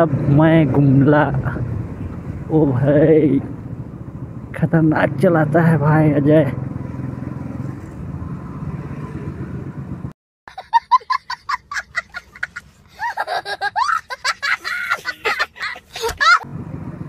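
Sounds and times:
road noise: 0:00.0 - 0:17.0
motorcycle engine: 0:05.4 - 0:10.0
child laughing: 0:10.5 - 0:16.5.

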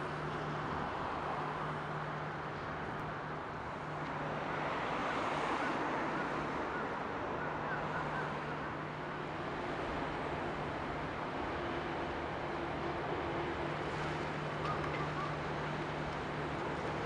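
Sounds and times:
wind and water: 0:00.0 - 0:17.0
low ship engine hum: 0:08.2 - 0:17.0.

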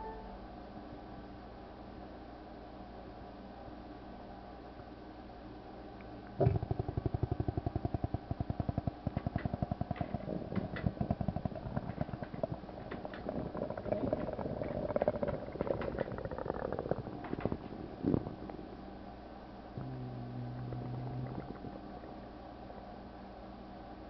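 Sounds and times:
stomach gurgling: 0:06.3 - 0:18.7, 0:19.8 - 0:22.3.

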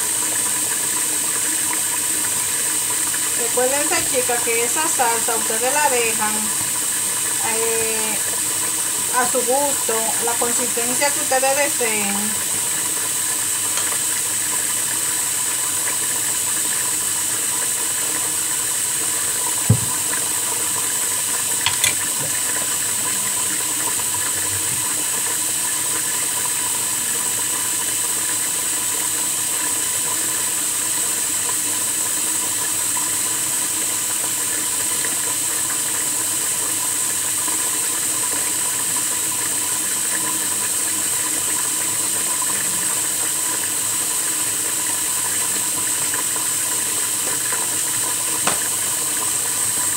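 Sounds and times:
sharp knock: 0:19.7 - 0:20.0, 0:48.5 - 0:48.7.

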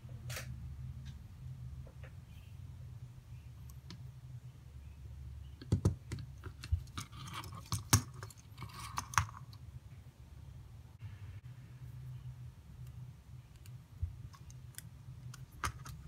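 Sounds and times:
plastic model parts knocking and clicking: 0:05.6 - 0:09.5.

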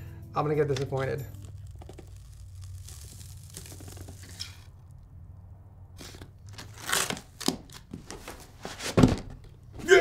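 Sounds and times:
packing rustling and crinkling: 0:01.0 - 0:04.6.

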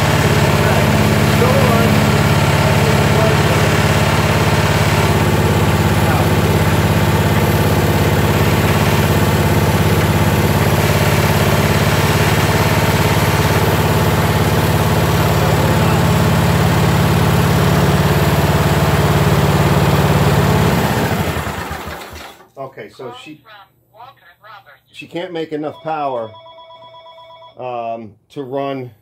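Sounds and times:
lawn tractor engine running: 0:00.0 - 0:22.4.

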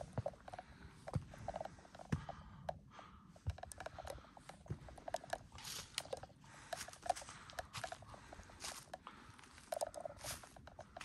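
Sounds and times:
footsteps crunching on trail: 0:03.4 - 0:11.0.

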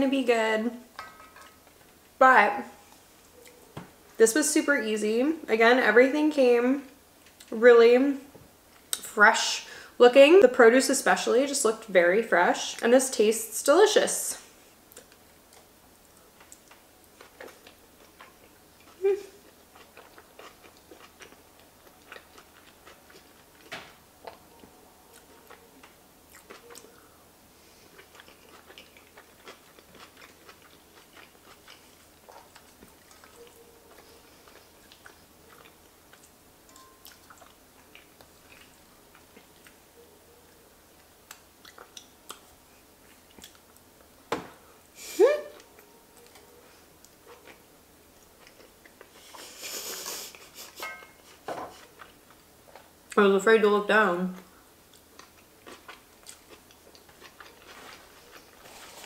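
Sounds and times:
close chewing and mouth sounds: 0:02.8 - 0:04.2, 0:07.2 - 0:07.6, 0:14.4 - 0:44.2, 0:44.8 - 0:53.2, 0:54.3 - 0:59.0.

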